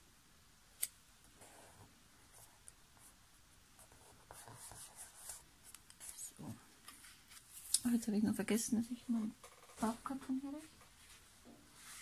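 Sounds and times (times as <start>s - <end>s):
paper rubbing and rustling: 10.9s - 12.0s.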